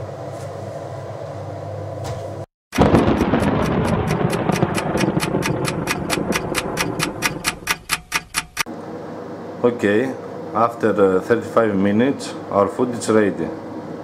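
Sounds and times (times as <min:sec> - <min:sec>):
rapid ticking: 0:02.8 - 0:08.7
rushing noise: 0:02.8 - 0:08.7.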